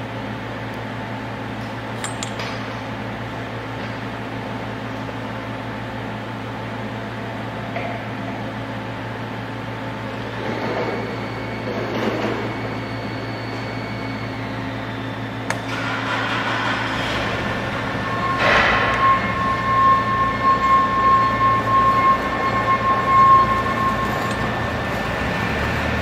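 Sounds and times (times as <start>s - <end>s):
ventilation and machinery hum: 0.0s - 26.0s
metal parts handling: 2.0s - 2.6s.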